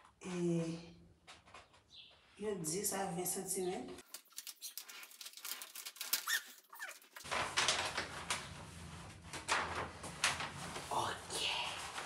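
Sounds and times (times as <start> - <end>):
plastic contact paper crackling: 4.0 - 12.0.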